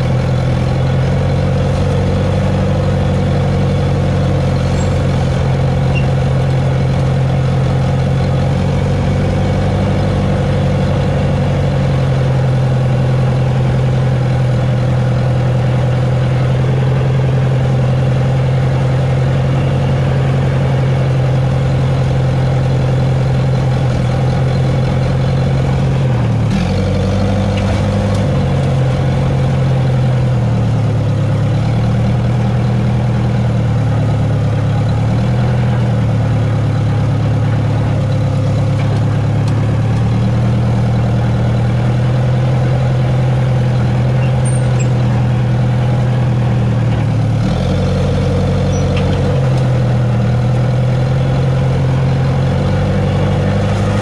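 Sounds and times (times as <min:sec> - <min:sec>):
dozer diesel engine running: 0:00.0 - 0:54.0.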